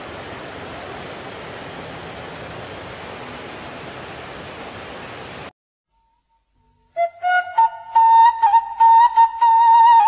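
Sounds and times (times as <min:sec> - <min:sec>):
stream water rushing: 0:00.0 - 0:05.5.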